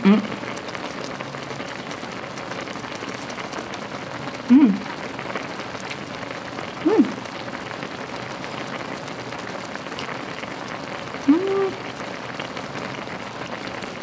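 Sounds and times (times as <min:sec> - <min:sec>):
person humming mm: 0:00.0 - 0:00.5, 0:04.5 - 0:04.9, 0:06.8 - 0:07.2, 0:11.3 - 0:11.8
broth bubbling at a boil: 0:00.0 - 0:14.0.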